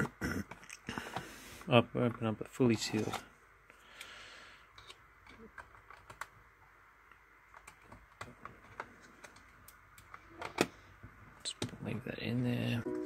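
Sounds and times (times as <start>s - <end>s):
fingers clicking and tapping plastic: 4.8s - 6.4s, 7.5s - 10.7s.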